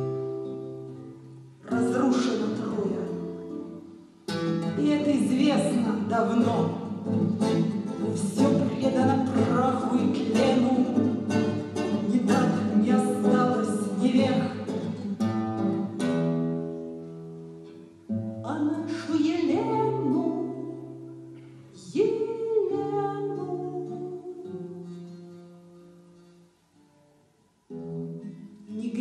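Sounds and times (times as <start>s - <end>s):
classical guitar strumming: 0.0s - 29.0s
woman singing: 1.6s - 3.6s, 4.6s - 15.0s, 18.4s - 21.1s, 21.7s - 25.0s, 28.7s - 29.0s.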